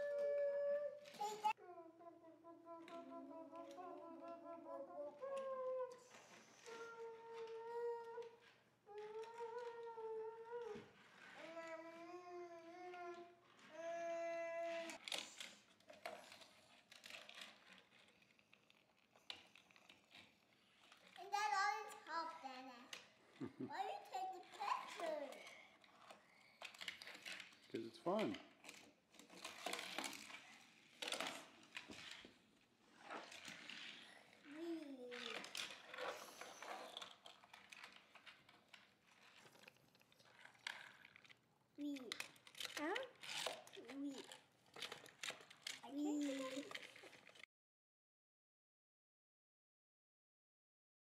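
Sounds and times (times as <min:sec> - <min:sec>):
child's voice holding a note: 0:00.0 - 0:06.0, 0:21.2 - 0:22.9, 0:23.6 - 0:25.6, 0:41.8 - 0:42.2, 0:45.8 - 0:46.8
child vocal sound: 0:00.0 - 0:15.0, 0:34.5 - 0:36.8
toy cars clicking and rattling: 0:05.3 - 0:23.2, 0:23.8 - 0:47.5.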